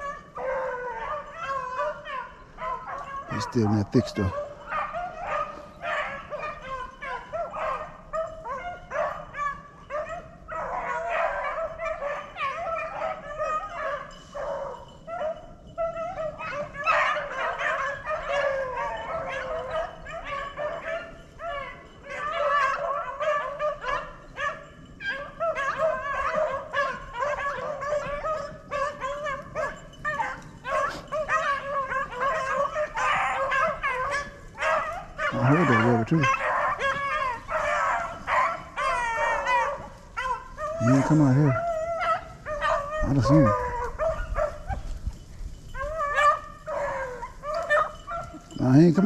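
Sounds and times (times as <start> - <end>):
hounds baying and yipping: 0.0 - 49.0.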